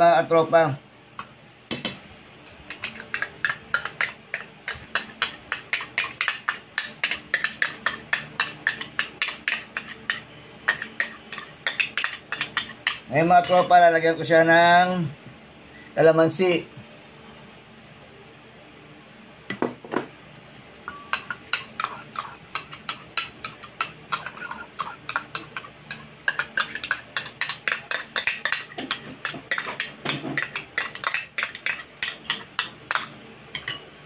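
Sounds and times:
metal spoon scraping plastic bowls: 2.7 - 13.0, 21.1 - 33.1.

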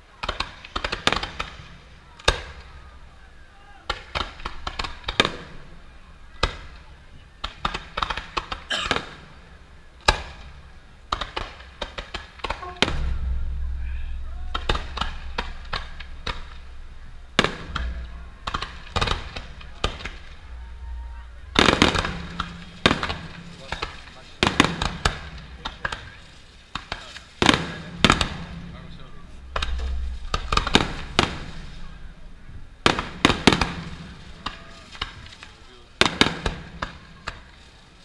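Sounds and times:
fireworks bangs and crackles: 0.0 - 38.0
deep rumble: 12.6 - 35.4.

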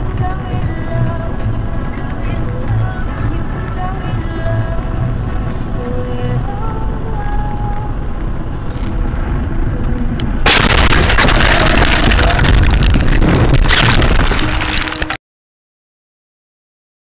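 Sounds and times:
road rumble: 0.0 - 15.2
car crash: 10.4 - 15.2.

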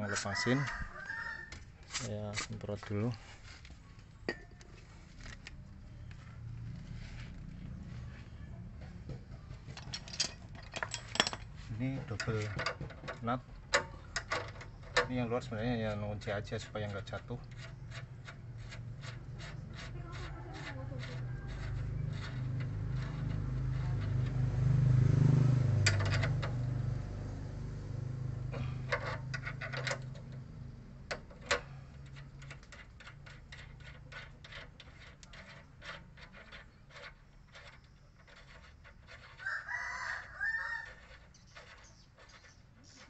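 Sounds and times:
rooster crowing: 0.0 - 1.6, 39.3 - 41.2
spanner metal clicks: 28.9 - 37.8.

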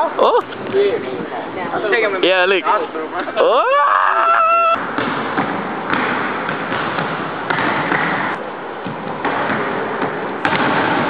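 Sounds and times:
basketballs bouncing on wooden floor: 4.8 - 11.0.

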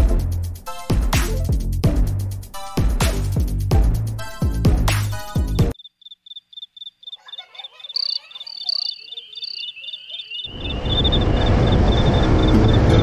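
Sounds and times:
electronic music with deep bass: 0.0 - 5.8
insect chirping: 5.7 - 12.5.

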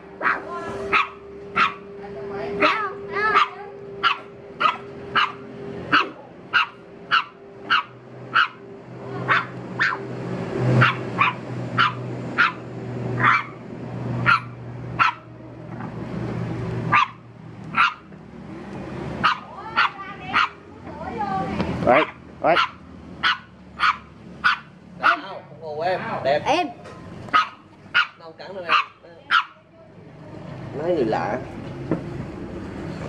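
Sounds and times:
puppy barking: 0.2 - 1.9, 2.6 - 10.1, 10.8 - 12.6, 13.2 - 13.6, 14.2 - 15.3, 16.9 - 18.1, 19.2 - 20.7, 21.9 - 25.4, 27.3 - 29.7.

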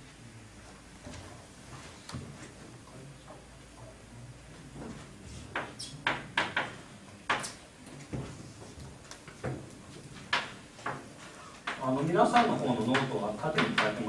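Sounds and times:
chalk tapping on blackboard: 5.5 - 7.6, 10.3 - 11.0, 11.6 - 14.0.

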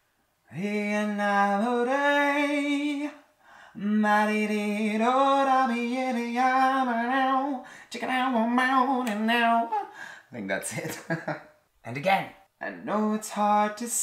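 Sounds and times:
man singing unaccompanied: 0.5 - 10.0, 12.6 - 14.0
breath: 3.4 - 3.8, 7.6 - 7.9, 9.9 - 10.3.

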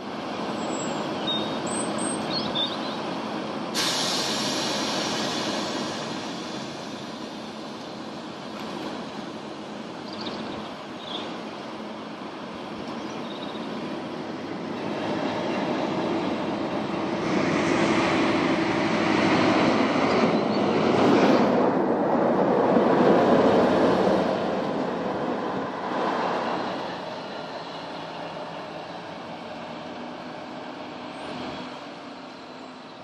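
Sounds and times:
diesel locomotive engine running: 0.0 - 33.0.

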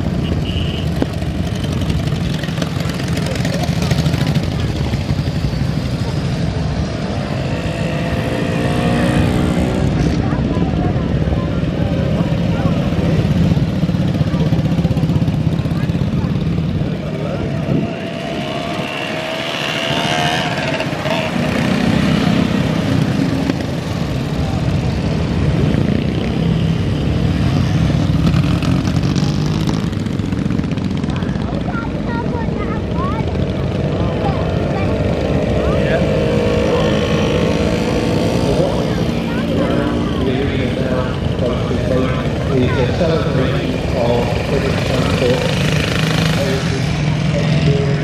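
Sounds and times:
motorcycles riding past: 0.0 - 48.0.

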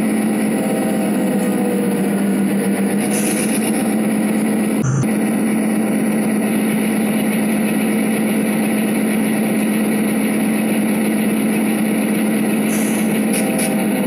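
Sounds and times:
train engine drone: 0.0 - 14.0.

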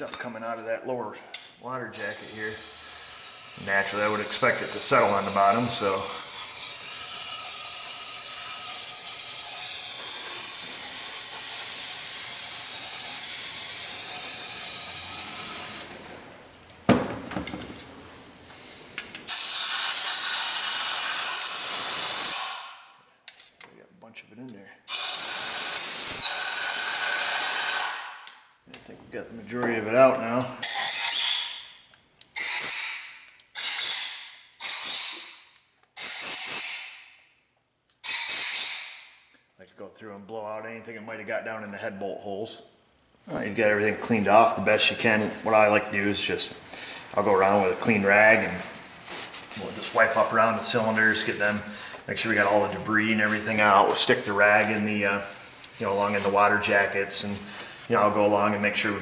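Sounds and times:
compressed air blasts: 32.4 - 35.4, 36.0 - 37.1, 38.0 - 39.1.

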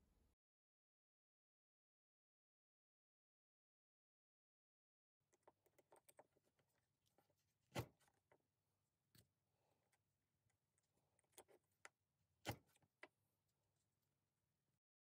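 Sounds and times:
metal awl and chain clicking on wood: 5.4 - 8.4.

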